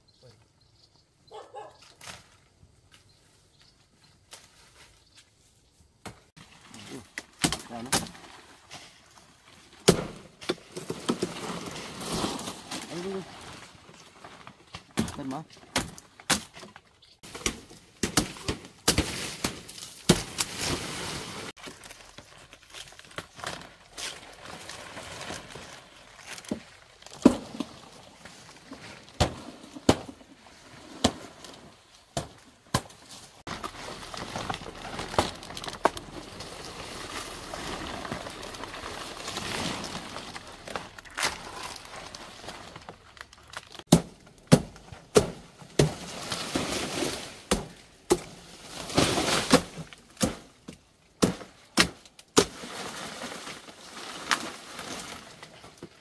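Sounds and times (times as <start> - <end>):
rustling and scraping: 8.1 - 15.0, 33.0 - 43.9.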